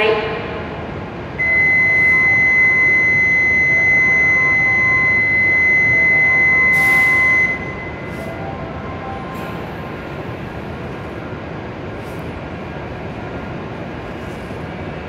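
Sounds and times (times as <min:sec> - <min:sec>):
high steady warning buzzer: 0:01.4 - 0:08.3.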